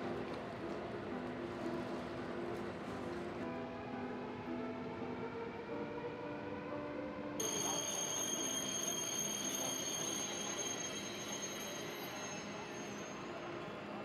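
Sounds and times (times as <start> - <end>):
soft music: 0.0 - 14.0
train high-pitched whine: 7.4 - 14.0.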